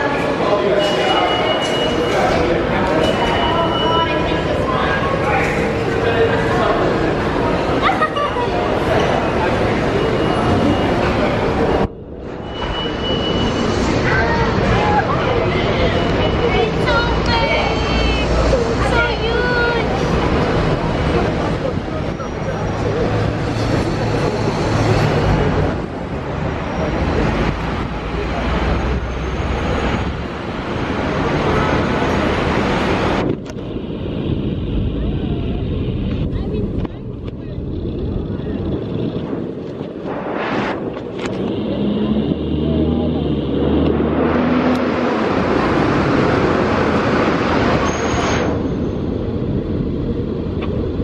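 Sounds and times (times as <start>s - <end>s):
busy city street traffic: 0.0s - 51.0s
brief high squeal: 12.3s - 14.3s, 47.8s - 49.0s.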